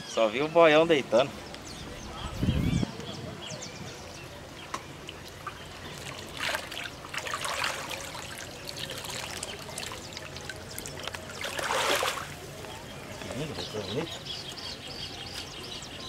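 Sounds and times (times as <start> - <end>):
fish splashing at water surface: 5.4 - 12.4.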